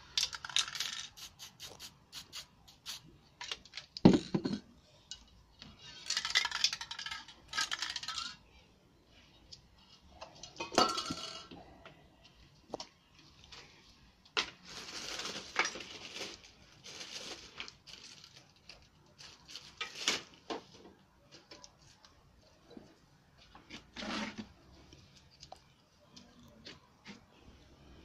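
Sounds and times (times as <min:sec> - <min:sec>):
paper rustling and crinkling: 0:14.4 - 0:22.2.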